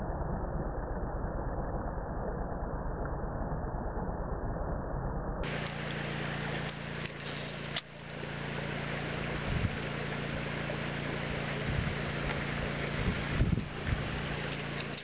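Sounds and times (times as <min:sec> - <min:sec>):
low steady hum: 0:00.0 - 0:15.0
steady rushing noise: 0:11.1 - 0:15.0.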